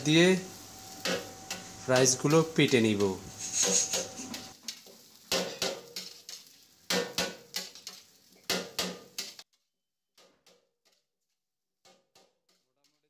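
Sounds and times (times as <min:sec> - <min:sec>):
metal spatula scraping wok: 0:00.5 - 0:09.4.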